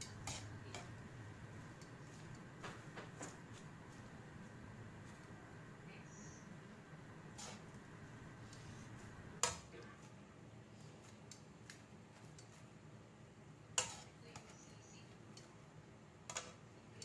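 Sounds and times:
metal tongs clacking against wok: 0.0s - 1.0s, 9.4s - 9.8s, 13.8s - 14.5s, 16.3s - 16.6s
low background hum: 0.0s - 17.0s.

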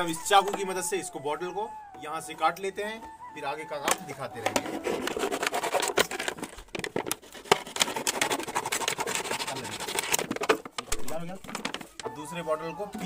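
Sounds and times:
knife sawing through plastic bottle: 4.4s - 10.8s
plastic crinkling: 5.9s - 12.2s.

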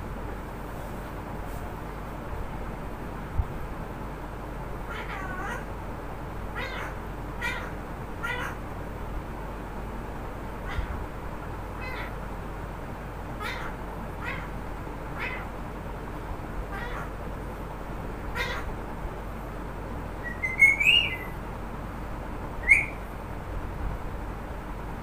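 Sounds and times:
parakeet high-pitched calls: 4.9s - 5.7s, 6.5s - 8.6s, 10.6s - 11.0s, 11.7s - 12.2s, 13.4s - 15.6s, 16.7s - 17.2s, 18.3s - 18.8s, 20.2s - 21.4s, 22.6s - 23.1s.

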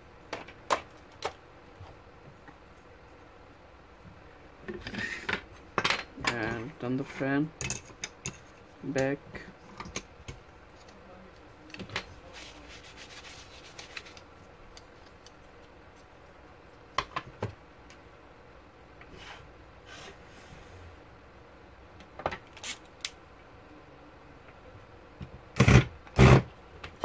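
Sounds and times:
hands rubbing and scraping: 12.1s - 16.2s.

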